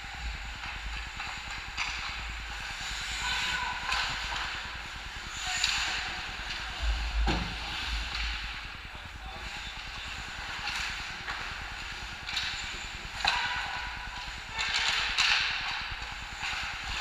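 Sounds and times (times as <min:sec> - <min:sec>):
skates scraping ice: 0:00.1 - 0:04.7.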